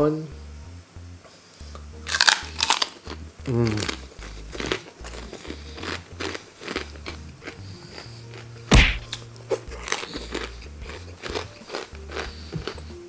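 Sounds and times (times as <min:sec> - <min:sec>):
background music with low beat: 0:00.0 - 0:13.0
crunching and chewing: 0:01.7 - 0:13.0
sharp loud thump: 0:08.7 - 0:09.2.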